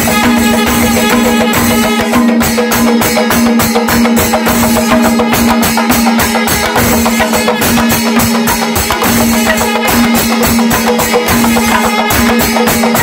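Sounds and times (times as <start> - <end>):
barrel drum beating: 0.0 - 13.0
hand cymbals clashing: 0.0 - 13.0.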